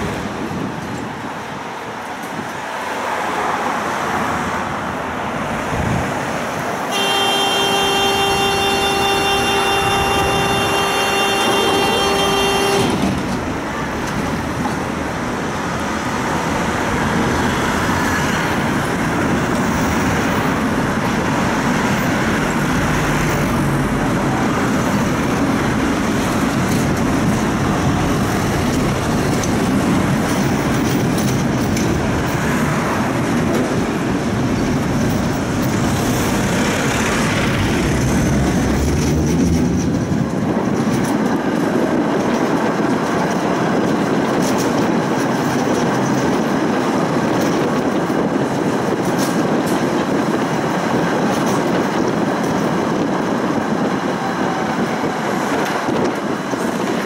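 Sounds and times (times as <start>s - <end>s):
tram rumbling on rails: 0.0s - 57.0s
steady horn-like tone: 6.9s - 13.1s.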